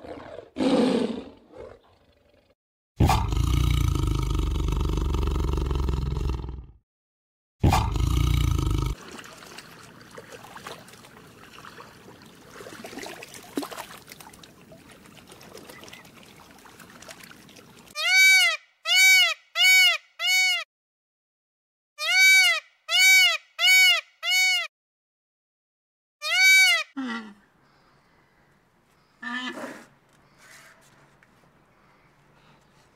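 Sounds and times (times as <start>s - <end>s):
tiger roar: 0.0s - 6.7s.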